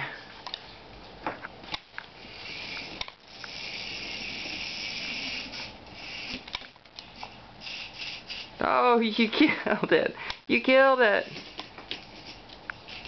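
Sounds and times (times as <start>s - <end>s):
small electric motor whirring: 2.2s - 6.6s.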